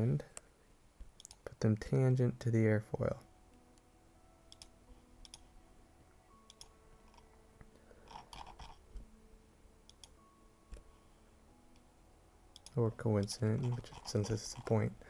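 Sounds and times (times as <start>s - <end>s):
computer mouse clicking: 1.2s - 1.4s, 4.5s - 5.4s, 6.5s - 7.2s, 9.9s - 10.8s, 12.5s - 14.8s.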